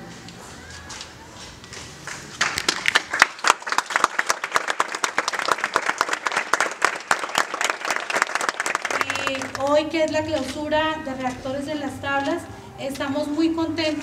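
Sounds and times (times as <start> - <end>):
audience applauding: 2.0 - 9.7.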